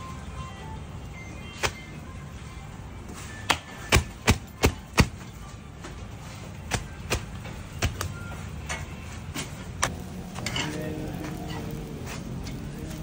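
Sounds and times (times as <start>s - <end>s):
palms slapping dough: 3.4s - 5.2s, 6.6s - 8.2s.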